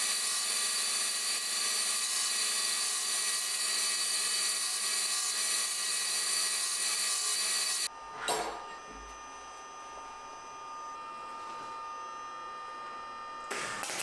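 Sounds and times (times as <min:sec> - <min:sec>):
belt grinder grinding steel: 0:00.0 - 0:07.9.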